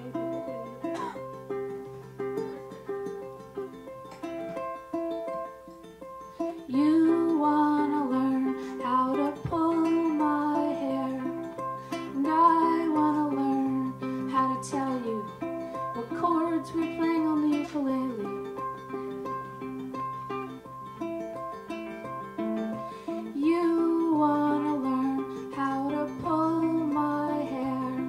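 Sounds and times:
person singing: 0.0 - 1.2, 6.5 - 18.6, 22.7 - 28.0
ukulele playing: 0.0 - 28.0.

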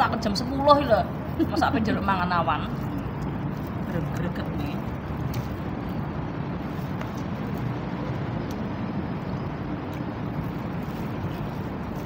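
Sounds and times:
low rumble with hiss: 0.0 - 12.0
plastic glove crinkling: 1.3 - 8.2, 10.0 - 12.0.

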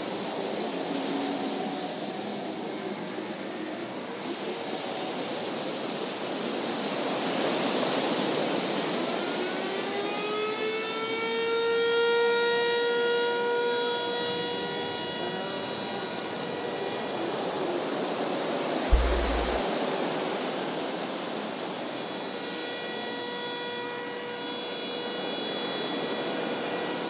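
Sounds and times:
steady rushing noise: 18.9 - 19.6.

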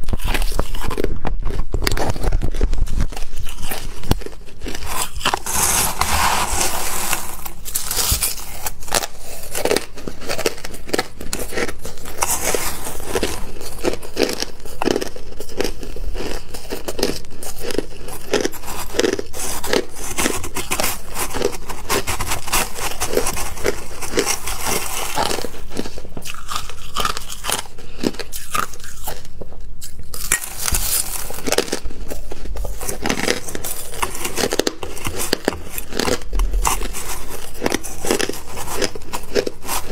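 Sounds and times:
ice being chewed: 0.0 - 39.9
metal spoon scraping ice in bowl: 4.7 - 9.0, 32.7 - 39.9.

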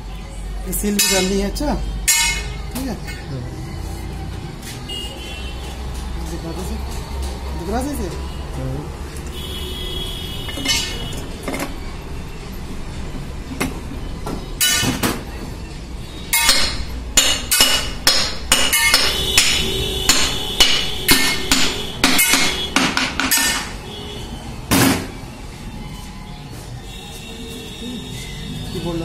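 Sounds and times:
hammer striking metal: 0.9 - 1.4, 2.1 - 2.8, 10.6 - 11.1, 14.6 - 15.2, 16.3 - 23.8.

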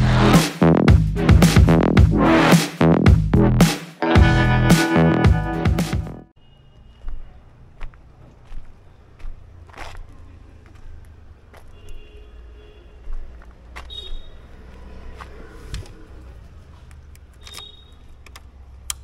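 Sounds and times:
sharp clicks: 16.9 - 19.0.

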